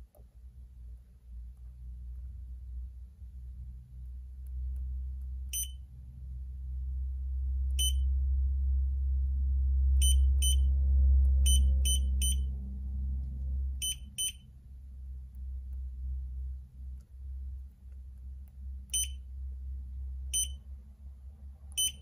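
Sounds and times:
low hum: 0:00.0 - 0:22.0
touchscreen buzzer beeps: 0:05.6 - 0:05.8, 0:07.8 - 0:08.1, 0:10.0 - 0:10.7, 0:11.4 - 0:12.5, 0:13.8 - 0:14.5, 0:18.9 - 0:19.2, 0:20.3 - 0:20.6, 0:21.8 - 0:22.0.

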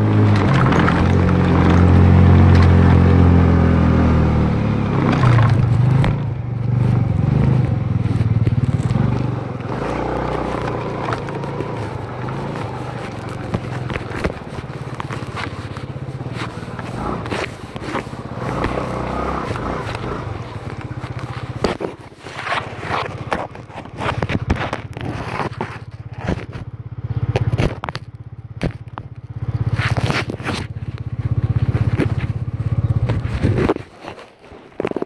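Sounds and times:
scooter engine idling: 0:00.0 - 0:33.6
camera handling scrapes and clicks: 0:06.9 - 0:26.7.

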